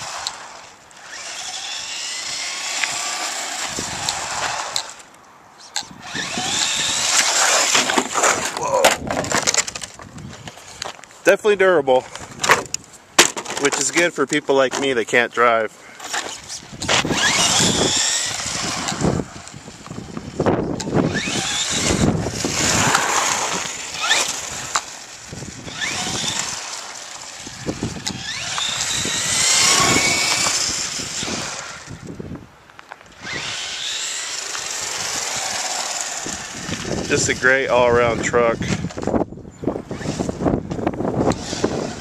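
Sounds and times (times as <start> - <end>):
electric motor whining: 0.0 - 5.1, 5.8 - 8.6, 16.0 - 32.3, 33.1 - 42.0.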